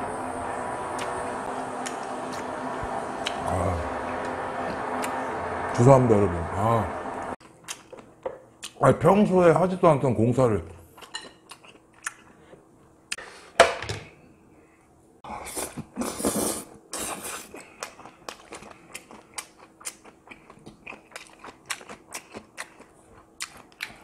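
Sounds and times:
wet chewing clicks and crunches: 7.4s - 8.8s, 17.5s - 24.0s.

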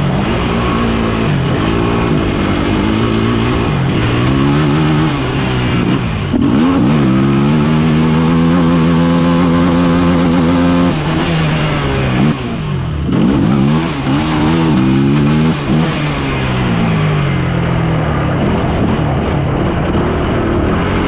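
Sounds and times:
off-road vehicle engine revving: 0.0s - 21.0s.

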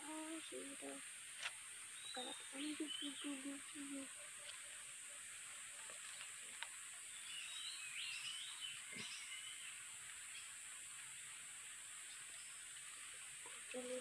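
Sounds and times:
high-pitched insect drone: 0.0s - 5.6s
small bird warbling: 2.0s - 4.1s.

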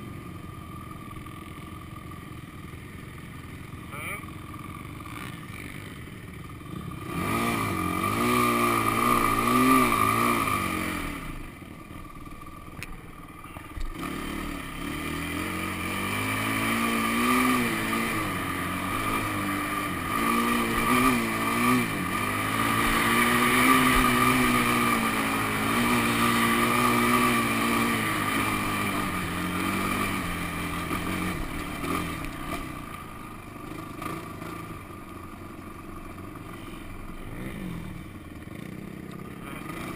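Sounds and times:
quad engine revving: 3.8s - 39.9s.

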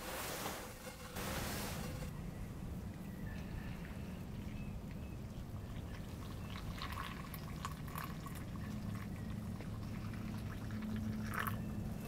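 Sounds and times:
low steady hum: 0.0s - 12.0s
water pouring into metal mug: 6.2s - 9.2s, 10.0s - 11.6s.

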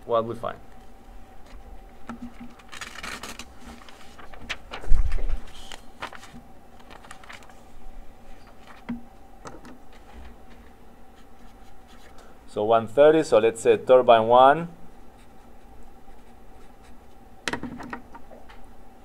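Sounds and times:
paper rustling and sliding: 2.2s - 9.0s, 9.9s - 12.2s.

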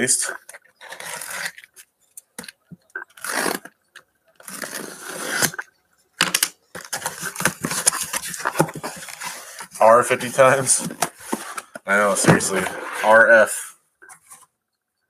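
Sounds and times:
cardboard ripping and rustling: 3.1s - 3.7s, 4.4s - 5.6s.

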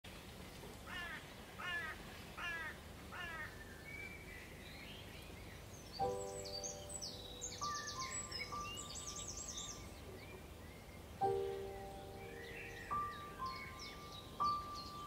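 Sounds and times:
crow cawing: 0.9s - 3.6s
birds chirping: 0.9s - 15.0s
held chord of steady tones: 6.0s - 10.0s, 11.2s - 15.0s.

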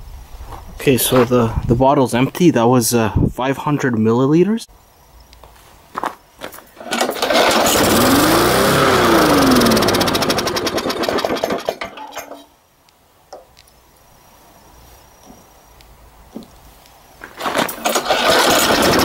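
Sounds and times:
lawn mower engine running: 6.8s - 12.0s, 17.4s - 19.0s.

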